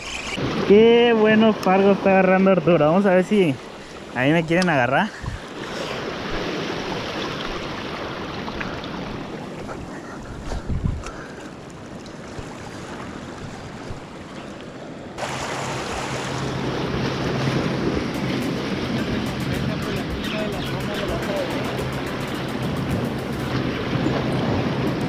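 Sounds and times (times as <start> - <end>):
wind on microphone: 5.2 - 7.2, 8.9 - 11.3
steady low hum: 15.2 - 25.0.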